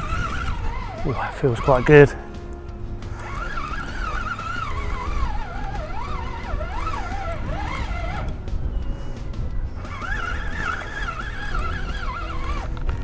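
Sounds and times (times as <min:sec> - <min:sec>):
wandering whistling tone: 0:00.0 - 0:02.3, 0:03.0 - 0:13.0
steady low rumble: 0:00.0 - 0:13.0.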